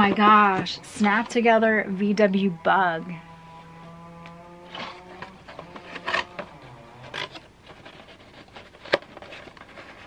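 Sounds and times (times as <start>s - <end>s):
hands rubbing cardboard box: 4.7s - 10.0s.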